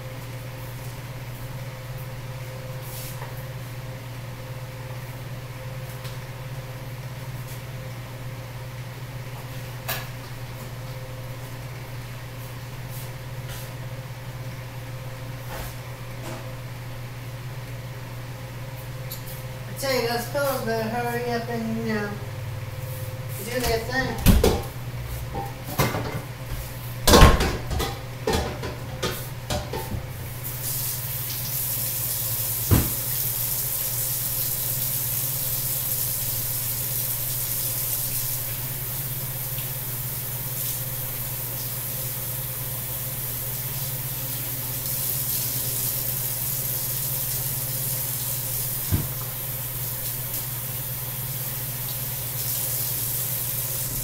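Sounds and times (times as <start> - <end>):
water running from a tap: 30.4 - 54.0.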